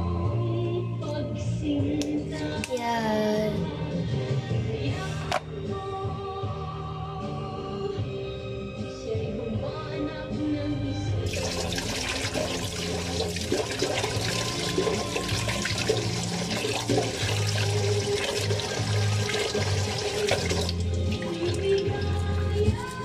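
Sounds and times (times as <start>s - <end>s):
background music: 0.0s - 23.0s
tap water running into steel sink: 11.3s - 22.3s.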